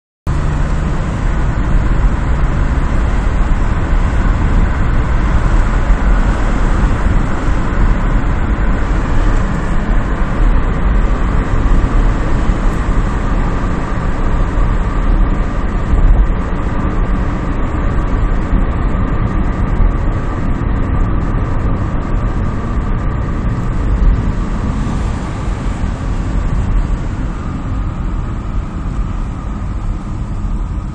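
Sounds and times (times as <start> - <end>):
tyre and traffic noise: 0.3 - 30.9
wind rumble on microphone: 0.3 - 30.9.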